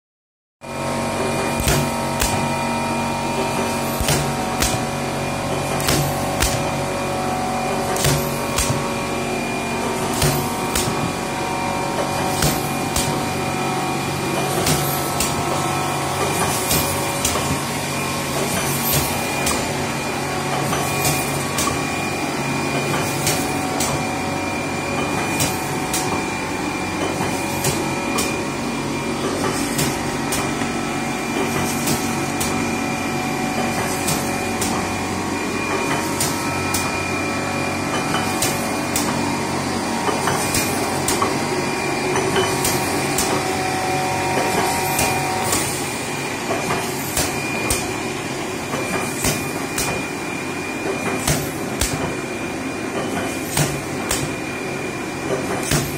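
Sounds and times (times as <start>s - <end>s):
motor hum: 0.6s - 50.9s
air cylinders clacking: 3.2s - 6.9s, 7.7s - 8.9s, 9.9s - 11.3s, 11.9s - 13.4s, 14.0s - 17.7s, 18.3s - 19.8s, 20.5s - 21.8s, 22.7s - 24.0s, 40.0s - 41.5s, 42.1s - 43.7s, 44.3s - 48.0s.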